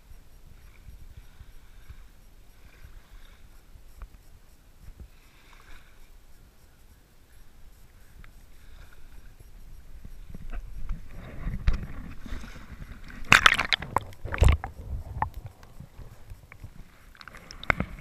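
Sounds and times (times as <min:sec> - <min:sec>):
water lapping at shoreline: 0:00.0 - 0:18.0
wind rumble on microphone: 0:00.0 - 0:18.0
small knocks and splashes: 0:11.6 - 0:15.7.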